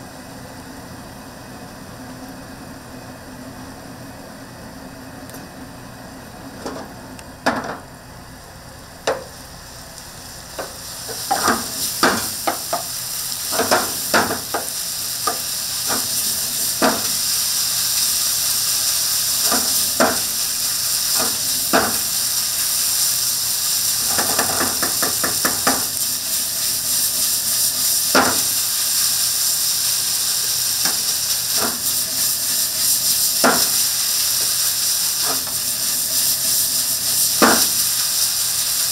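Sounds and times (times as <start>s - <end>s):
food sizzling in a frying pan: 7.7s - 38.9s
utensil tapping a pan: 10.6s - 12.9s, 24.1s - 25.9s.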